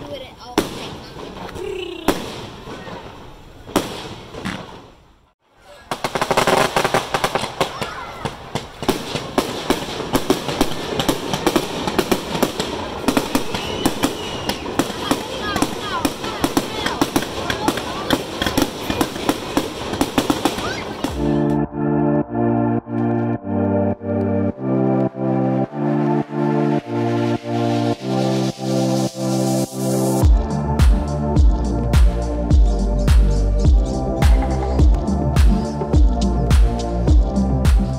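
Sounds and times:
fireworks bangs and crackles: 0.0s - 5.1s, 5.9s - 21.6s, 26.0s - 32.2s
pulsing synth chords: 21.1s - 37.9s.

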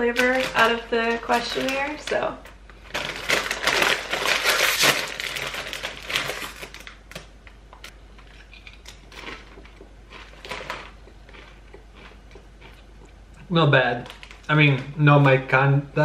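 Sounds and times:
chip bag crinkling: 0.0s - 7.3s, 8.4s - 12.8s, 13.8s - 14.9s.

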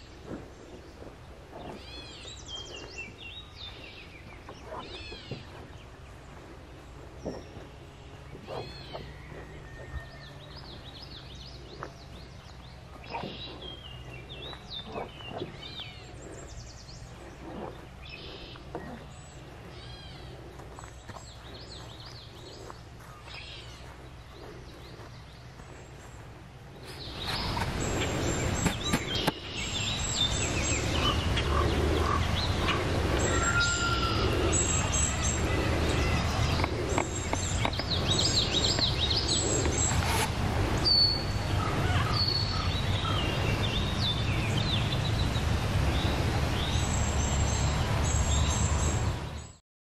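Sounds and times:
footsteps on dirt trail: 0.0s - 30.4s, 34.6s - 43.2s
creek flowing: 0.0s - 49.5s
birds singing: 0.0s - 49.6s.

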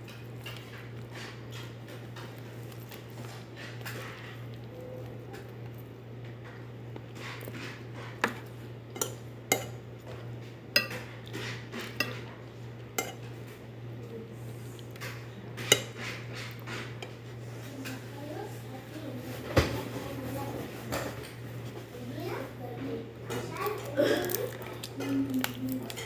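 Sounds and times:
cutlery scraping ceramic plate: 10.8s - 12.4s, 13.0s - 13.4s, 15.0s - 17.2s.

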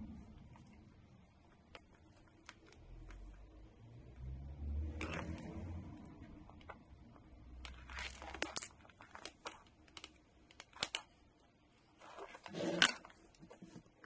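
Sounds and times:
wires crinkling and rustling: 5.0s - 14.0s.

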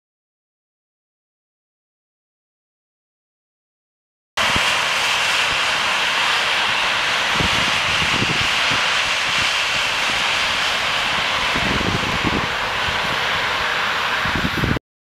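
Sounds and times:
train passing at speed: 4.4s - 14.8s.

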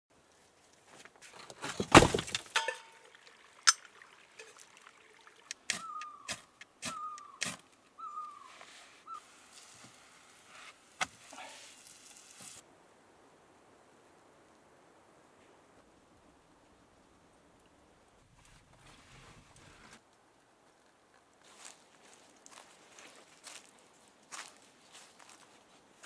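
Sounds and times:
short whistled call: 5.7s - 8.5s.

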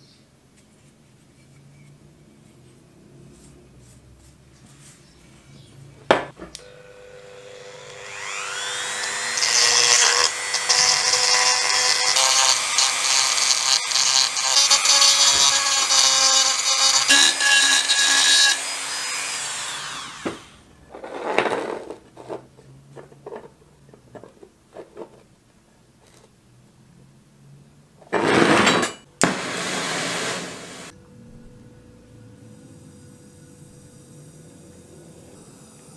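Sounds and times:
rotary tool grinding metal: 7.6s - 21.4s.

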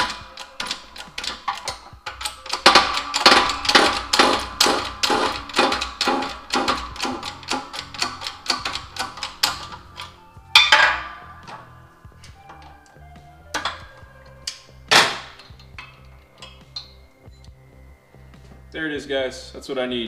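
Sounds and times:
hand-pumped jack clicking: 0.0s - 10.8s
loud metallic clank: 0.0s - 11.7s, 13.5s - 17.0s.

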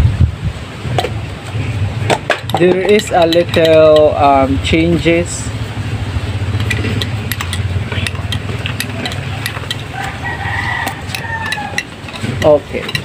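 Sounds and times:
low hum: 3.4s - 13.0s
spoon clinking in glass: 6.6s - 10.2s
rooster crowing: 9.1s - 12.1s.

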